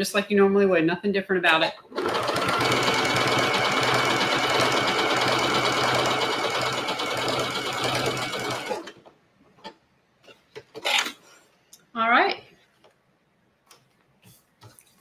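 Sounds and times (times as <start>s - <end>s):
sewing machine running: 1.9s - 9.0s.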